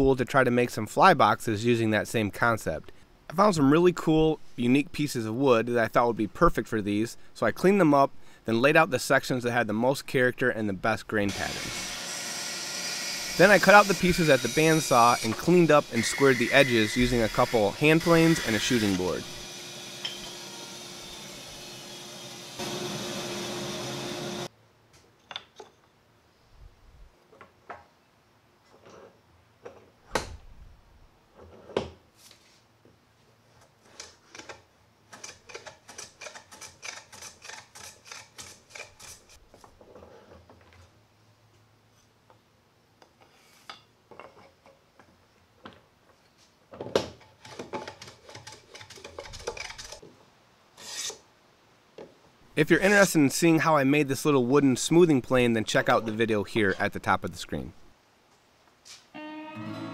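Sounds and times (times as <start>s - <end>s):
bandsaw running: 11.3s - 24.5s
wooden plane strokes: 13.2s - 20.5s, 50.8s - 51.2s.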